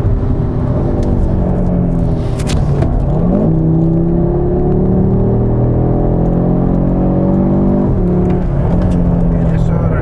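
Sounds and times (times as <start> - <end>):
car engine accelerating from cabin: 0.0 - 10.0.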